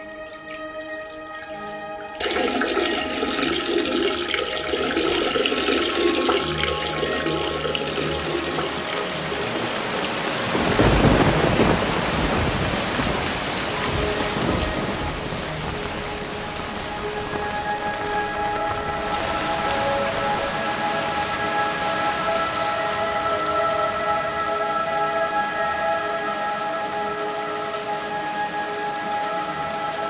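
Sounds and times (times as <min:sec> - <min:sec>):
heavy rain: 0:00.0 - 0:30.0
music tones: 0:00.0 - 0:30.0
thunder rumble: 0:07.2 - 0:24.4.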